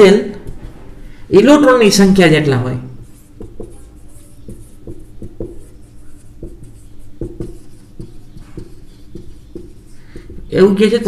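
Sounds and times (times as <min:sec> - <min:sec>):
marker writing on whiteboard: 0:00.3 - 0:00.8, 0:03.0 - 0:11.0.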